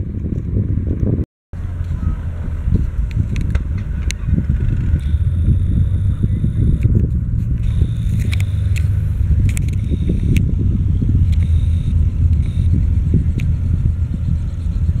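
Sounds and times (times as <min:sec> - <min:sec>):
helicopter engine and rotor rumble: 0:01.7 - 0:15.0.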